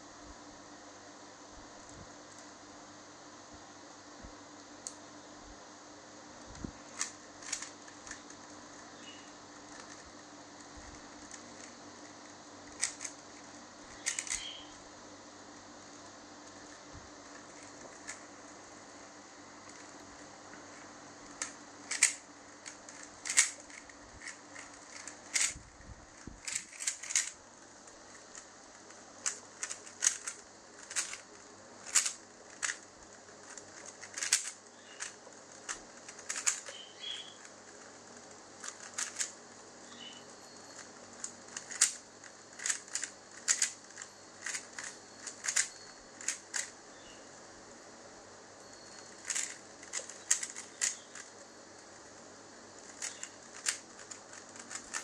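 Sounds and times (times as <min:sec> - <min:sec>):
puzzle cube layers clicking: 0:14.0 - 0:14.4, 0:21.4 - 0:25.6, 0:29.2 - 0:31.2, 0:33.5 - 0:36.8, 0:42.6 - 0:46.7.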